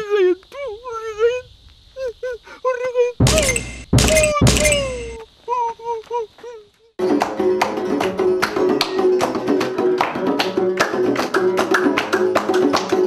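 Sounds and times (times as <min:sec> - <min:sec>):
person calling: 0:02.3 - 0:06.8
frame drum strokes: 0:03.2 - 0:05.2
plucked lutes: 0:03.2 - 0:05.2.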